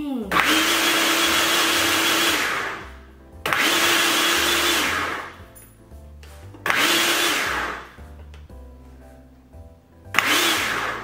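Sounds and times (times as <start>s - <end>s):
quiet background music: 0.0s - 11.0s
blender motor whine: 0.3s - 5.4s, 6.6s - 8.0s, 10.2s - 11.0s.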